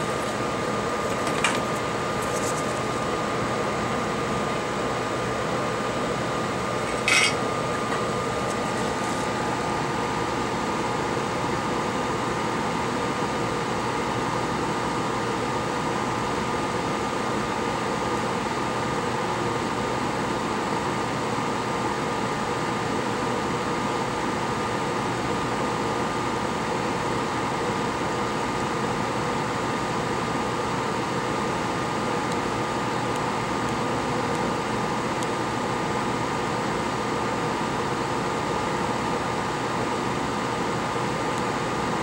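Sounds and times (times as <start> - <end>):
constant whine: 0.0 - 10.4
fan-like equipment hiss: 0.0 - 42.0.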